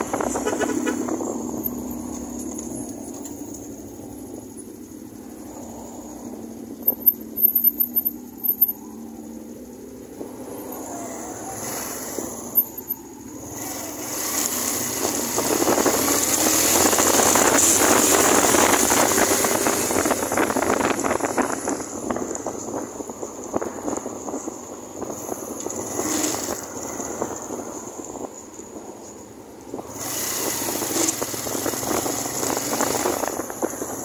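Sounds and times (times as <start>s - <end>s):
motorcycle engine: 0.0s - 5.1s, 10.6s - 22.6s, 30.0s - 34.0s
wind noise: 0.0s - 7.4s, 8.1s - 34.0s.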